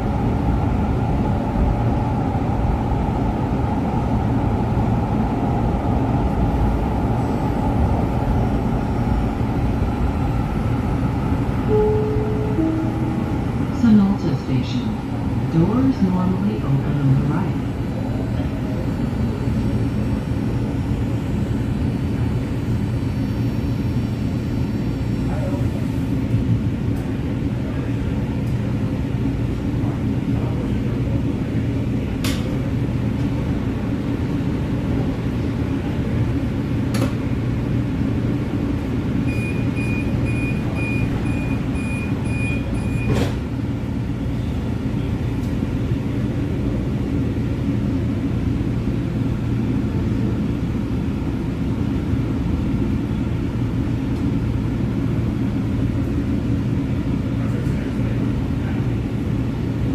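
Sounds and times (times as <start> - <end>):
train car hum and rumble: 0.0 - 59.9
short high warning beeps: 11.7 - 13.5, 39.3 - 43.2
train doors shutting click: 32.2 - 32.6, 36.9 - 37.2, 43.0 - 43.5.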